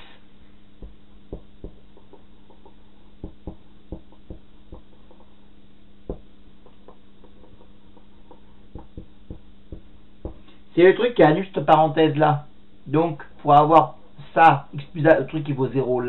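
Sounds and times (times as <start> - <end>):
steady low hum: 0.0 - 16.0
marker tapping and scratching whiteboard: 0.8 - 5.3, 6.1 - 10.5.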